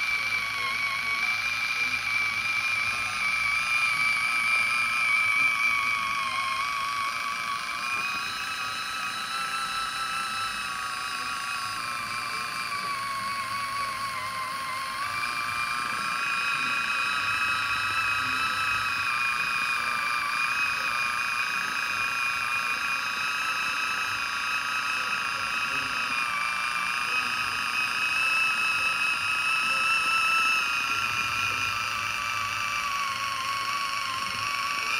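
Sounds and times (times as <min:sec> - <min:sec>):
electric can opener motor whine: 0:00.0 - 0:34.9.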